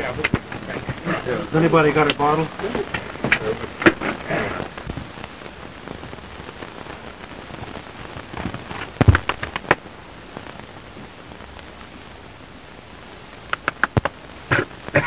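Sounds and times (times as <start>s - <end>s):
film soundtrack hiss: 0.0s - 15.0s
sharp knocks: 9.0s - 9.8s.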